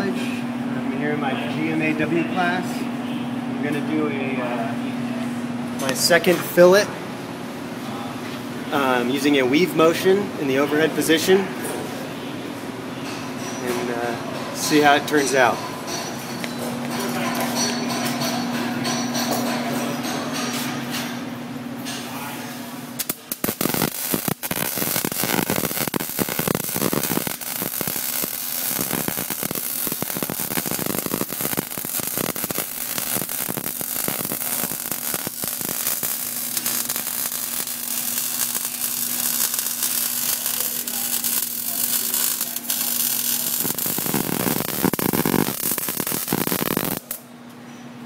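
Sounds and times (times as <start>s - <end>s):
welding arc crackling and sizzling: 22.4s - 47.2s.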